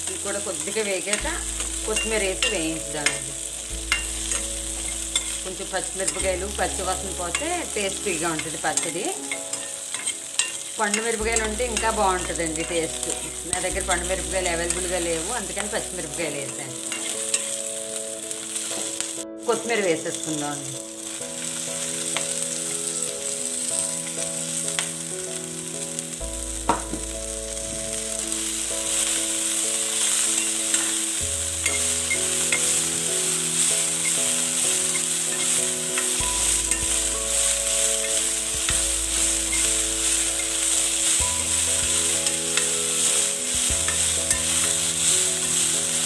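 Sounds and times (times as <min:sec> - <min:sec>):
leaves sizzling in hot oil: 0:00.0 - 0:46.0
spatula scraping and tapping pan: 0:08.4 - 0:12.8, 0:16.8 - 0:17.6, 0:30.0 - 0:31.0, 0:34.0 - 0:45.5.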